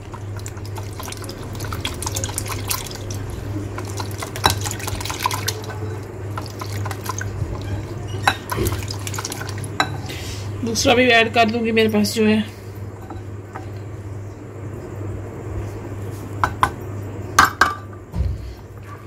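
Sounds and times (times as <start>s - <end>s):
whisk beating batter: 0.0s - 10.0s.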